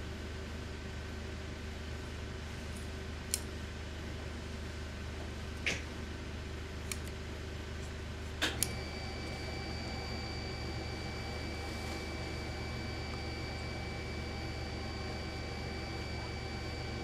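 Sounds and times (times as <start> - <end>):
low mechanical hum: 0.0 - 17.0
high steady whine: 8.4 - 17.0.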